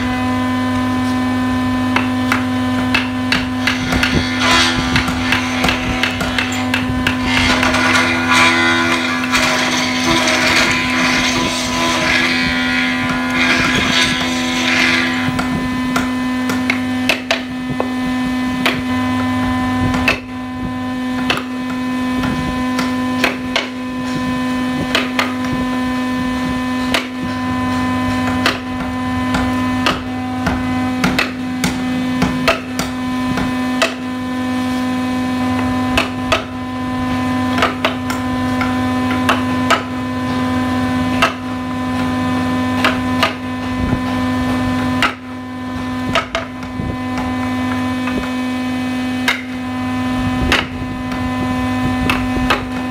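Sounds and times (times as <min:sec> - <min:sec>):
steady hum: 0:00.0 - 0:52.9
chisel tapping on wood: 0:01.9 - 0:08.0, 0:13.4 - 0:17.9, 0:19.9 - 0:20.2, 0:28.2 - 0:34.0, 0:37.6 - 0:39.9, 0:41.2 - 0:41.5, 0:45.0 - 0:45.3.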